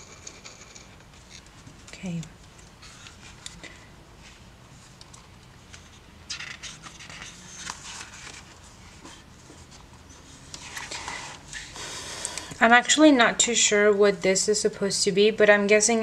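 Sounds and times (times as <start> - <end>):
paper pages turning: 2.5 - 11.7.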